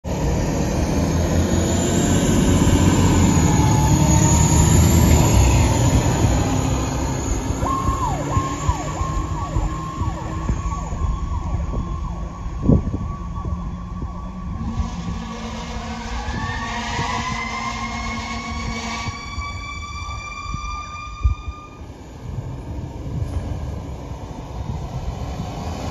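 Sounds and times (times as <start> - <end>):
fire truck diesel engine rumbling: 0.0 - 25.9
siren falling sweeps: 0.1 - 22.0
siren winding up: 2.5 - 21.9
loud horn blast: 14.5 - 21.9.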